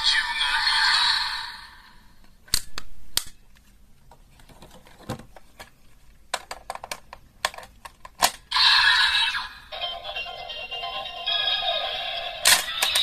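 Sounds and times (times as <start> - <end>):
plastic snap: 2.5 - 3.4
toy belt electronic audio: 8.5 - 13.0.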